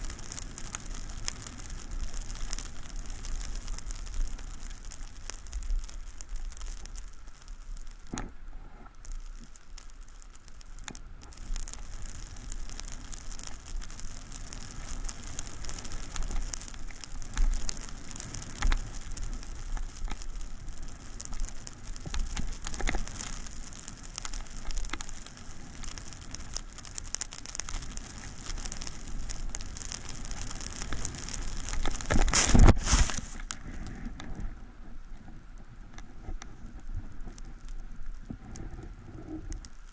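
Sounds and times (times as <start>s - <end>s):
skis scraping on snow: 11.3s - 34.0s.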